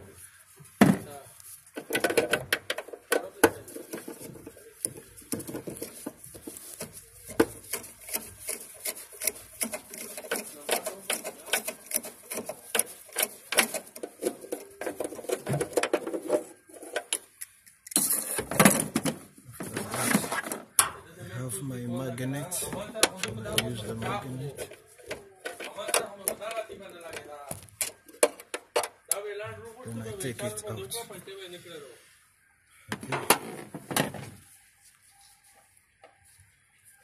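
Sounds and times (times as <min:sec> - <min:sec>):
handling noise: 0:00.0 - 0:21.1
metal rattling: 0:01.8 - 0:17.2.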